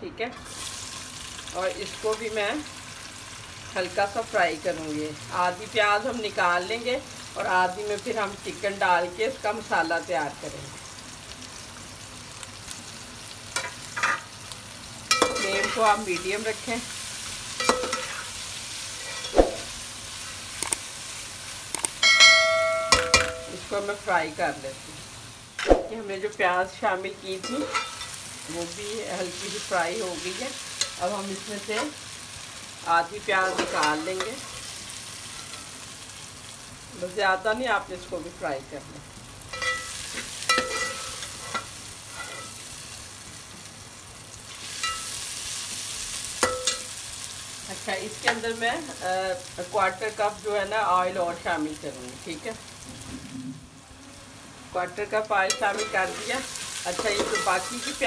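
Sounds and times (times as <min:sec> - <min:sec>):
onions sizzling in oil: 0:00.3 - 0:58.0
metal spoon stirring in pot: 0:17.6 - 0:18.3, 0:18.9 - 0:19.6, 0:27.4 - 0:28.2, 0:39.5 - 0:42.6, 0:55.4 - 0:58.0.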